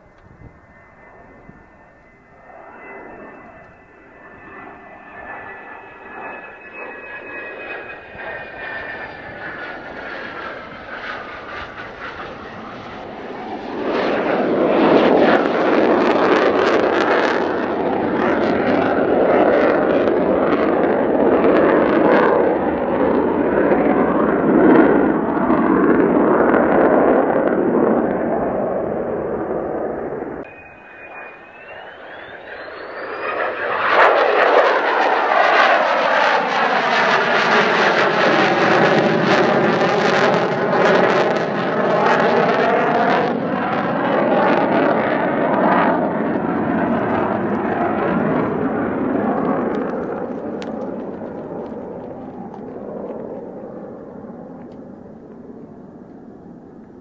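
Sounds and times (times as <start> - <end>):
crackling jet roar: 0.0 - 57.0
jet whine falling in pitch: 0.0 - 57.0.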